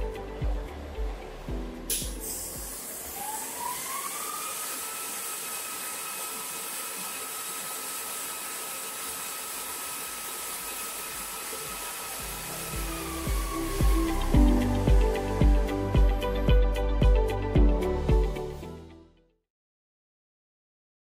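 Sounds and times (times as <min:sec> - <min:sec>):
welding machine fan whine: 0:00.0 - 0:18.4
hiss: 0:01.9 - 0:15.8.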